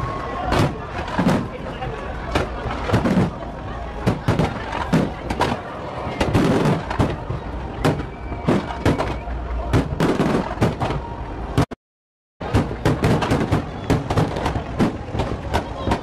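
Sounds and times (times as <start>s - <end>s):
continuous rumble: 0.0s - 11.8s, 12.4s - 16.0s
fireworks bangs and crackles: 0.0s - 11.8s, 12.4s - 16.0s.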